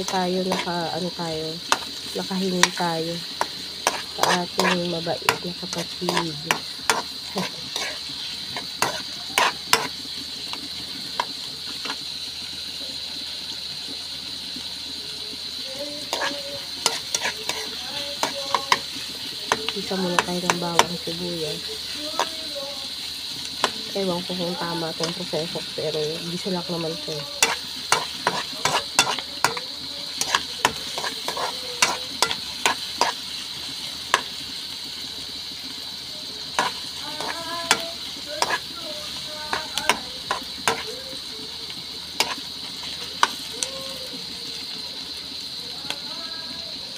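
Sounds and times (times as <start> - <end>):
metal spoon scraping a wok: 0.0 - 12.0, 15.9 - 22.6, 23.5 - 34.4, 36.5 - 41.0, 42.1 - 43.4
onions and garlic sizzling in oil: 0.0 - 46.9.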